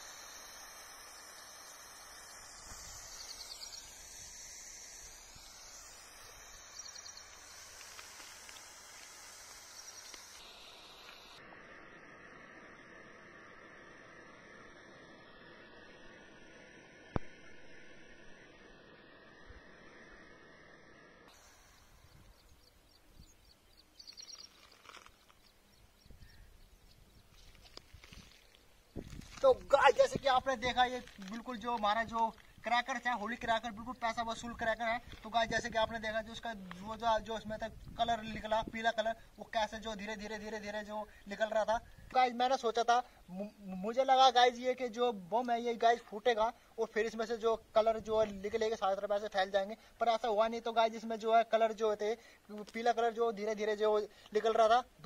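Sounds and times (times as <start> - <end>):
smoke bomb hissing: 0.0 - 23.4, 27.1 - 55.0
faint chirps: 0.0 - 42.2.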